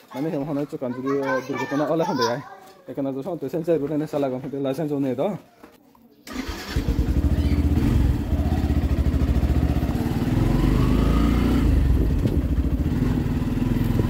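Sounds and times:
motorcycle engine running: 0:06.5 - 0:14.0.

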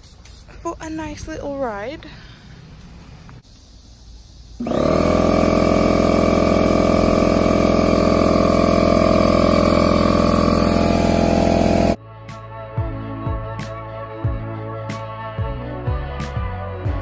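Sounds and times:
electric air compressor running: 0:04.6 - 0:12.0.

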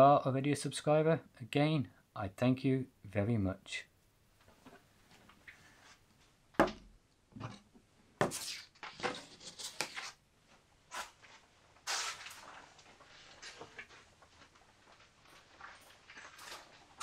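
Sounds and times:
scraping shuffle: 0:10.9 - 0:17.0.

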